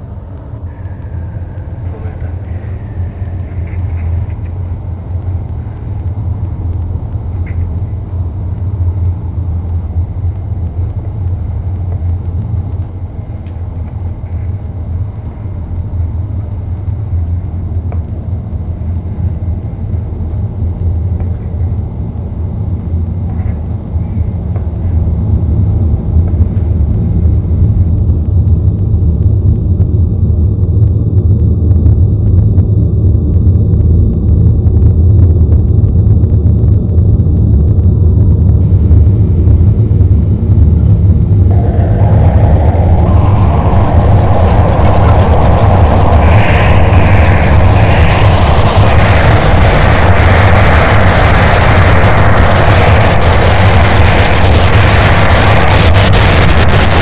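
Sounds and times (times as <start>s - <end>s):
low rumbling drone: 0.0s - 57.0s.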